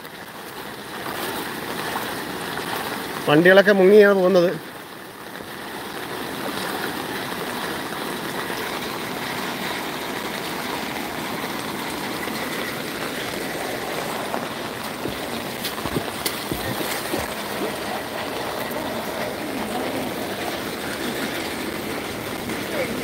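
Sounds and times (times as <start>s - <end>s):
rushing floodwater: 0.0s - 23.0s.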